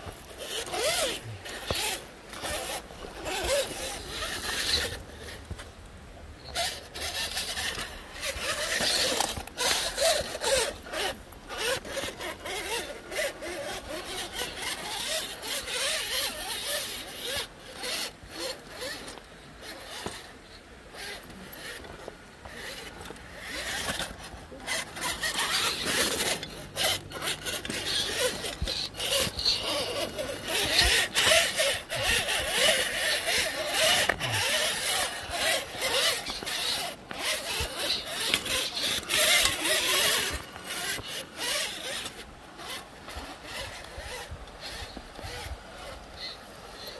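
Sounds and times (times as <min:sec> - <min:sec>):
toy car drivetrain whirring: 0:00.0 - 0:05.7, 0:06.4 - 0:46.9
small clicks and crunches: 0:00.0 - 0:46.9
tyres grinding over rock: 0:00.0 - 0:46.9.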